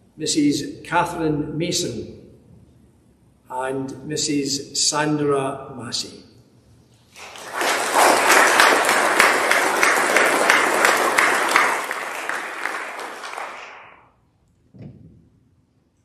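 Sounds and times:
congregation applauding: 7.1 - 14.1.

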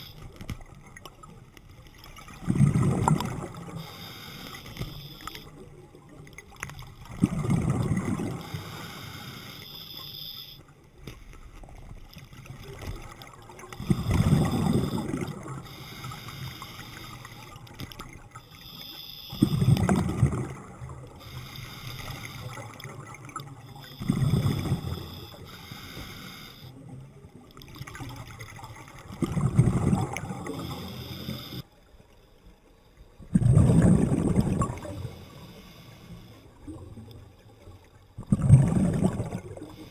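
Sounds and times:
exhaled bubbles rushing: 2.0 - 3.8, 5.5 - 8.6, 12.4 - 15.7, 19.4 - 21.3, 27.5 - 30.9, 33.2 - 35.2, 38.2 - 39.9
regulator hiss: 3.6 - 5.5, 8.4 - 10.6, 13.8 - 17.5, 18.5 - 19.7, 21.2 - 22.6, 23.7 - 26.7, 30.5 - 31.6.

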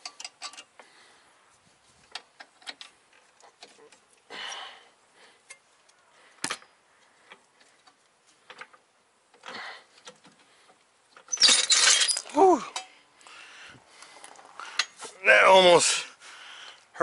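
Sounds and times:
soft rustles: 1.4 - 2.2.

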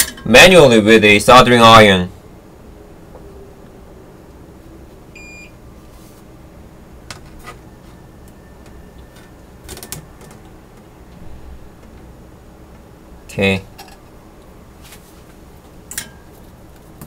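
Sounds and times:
steady low hum: 0.0 - 17.0
short electronic beep: 5.2 - 5.5.

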